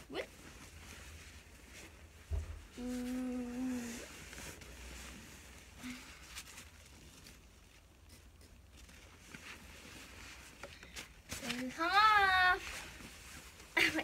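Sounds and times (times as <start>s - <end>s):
sleeping bag fabric rustling: 0.0s - 7.9s
girl humming: 2.8s - 4.1s.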